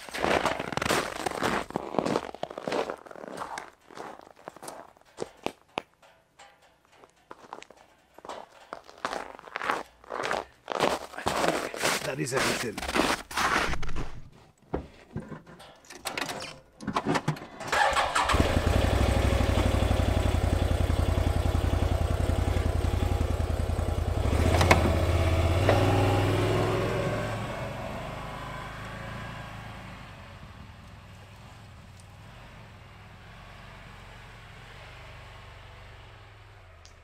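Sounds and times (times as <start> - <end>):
engine starting and rumbling: 15.0 - 31.8.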